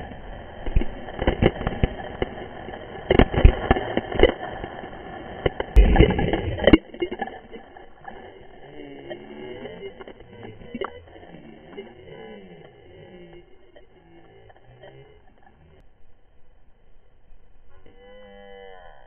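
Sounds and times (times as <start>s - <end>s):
water splashing: 0.0s - 14.0s.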